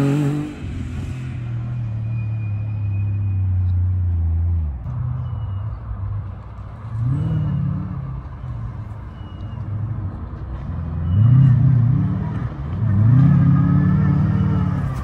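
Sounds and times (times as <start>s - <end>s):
car engine revving: 0.0s - 1.7s, 11.0s - 15.0s.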